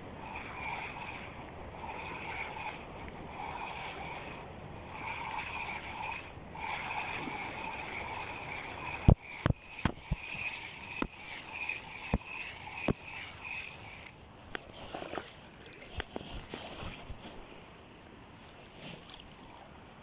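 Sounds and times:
rod and reel knocks: 0.0 - 15.3
fishing reel whirring: 0.0 - 15.4.

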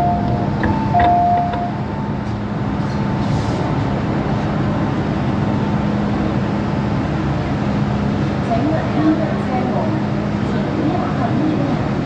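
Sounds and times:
constant low hum: 0.0 - 3.2
train running noise: 0.0 - 12.0.

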